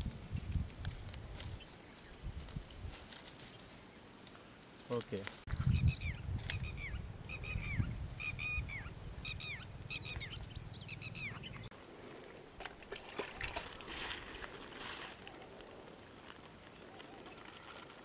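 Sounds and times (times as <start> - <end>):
small birds chirping: 5.1 - 11.7, 15.2 - 18.0
water pouring into plastic bottle: 12.6 - 14.8.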